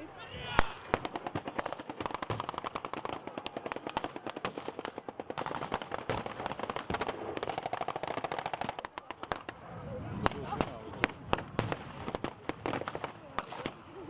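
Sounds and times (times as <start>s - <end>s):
single rifle shots: 0.5s - 9.4s
machine-gun bursts: 6.6s - 8.8s.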